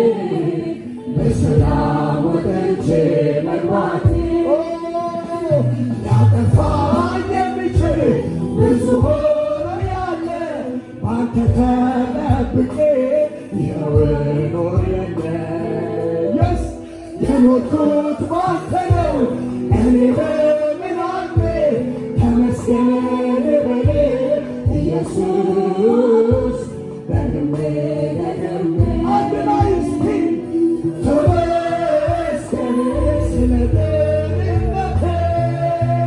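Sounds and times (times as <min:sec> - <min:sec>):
choir singing: 0:00.0 - 0:04.9, 0:22.2 - 0:35.6
man singing into microphone: 0:00.0 - 0:36.0
music with steady beat: 0:00.0 - 0:36.0.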